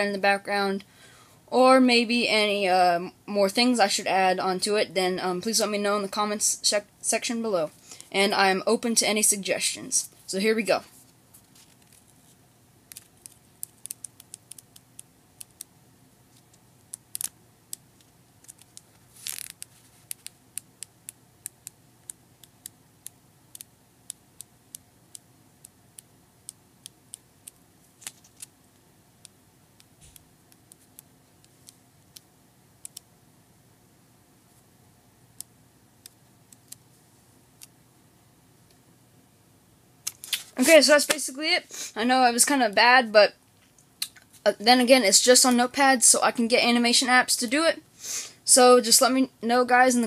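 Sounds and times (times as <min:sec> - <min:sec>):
paper pages flipping: 0:11.0 - 0:14.6, 0:18.0 - 0:20.4, 0:27.9 - 0:28.5.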